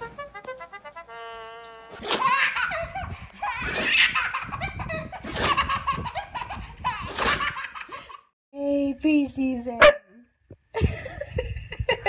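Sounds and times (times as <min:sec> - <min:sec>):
baby laughing: 0:01.9 - 0:08.3.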